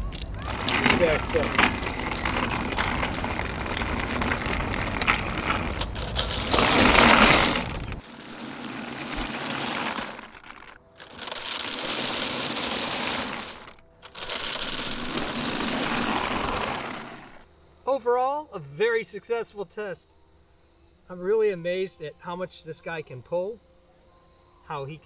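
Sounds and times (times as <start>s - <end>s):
caster wheels rattling on asphalt: 0.0s - 17.5s.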